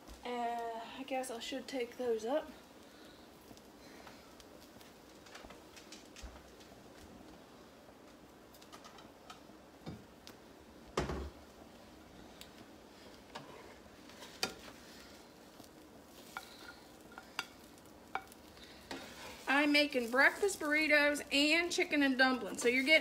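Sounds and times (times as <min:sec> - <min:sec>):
faint sizzle: 0:00.0 - 0:23.0
spatula scraping griddle: 0:13.0 - 0:21.2.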